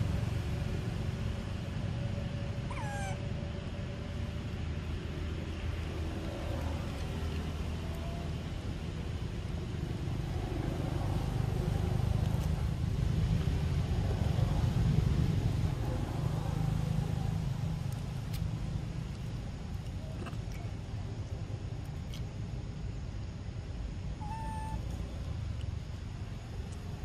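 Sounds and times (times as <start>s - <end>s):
vehicle engine rumble: 0.0s - 27.0s.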